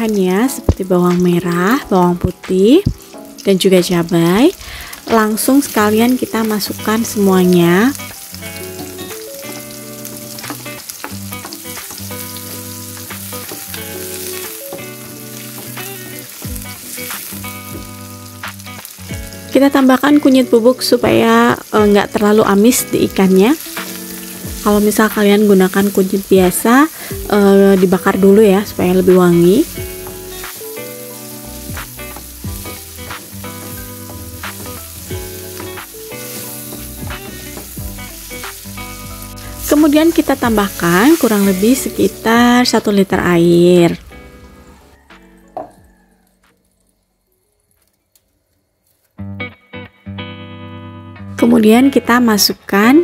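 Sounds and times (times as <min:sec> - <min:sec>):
food sizzling in oil: 0:00.0 - 0:46.2
background music: 0:00.0 - 0:46.9, 0:49.2 - 0:53.0
wooden spatula scraping wok: 0:08.0 - 0:17.7, 0:23.2 - 0:42.3
spatula scraping wok: 0:28.3 - 0:42.3.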